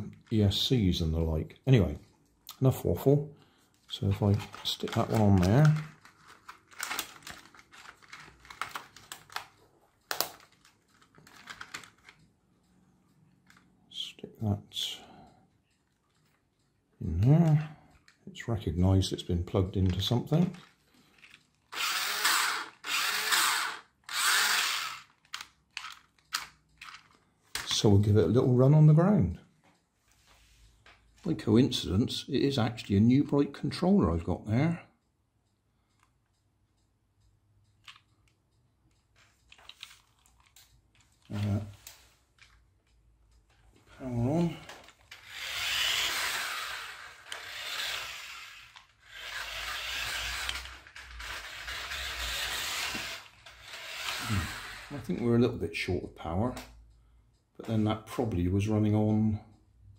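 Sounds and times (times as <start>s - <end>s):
toy car electric motor whirring: 21.1s - 27.1s, 44.9s - 55.1s.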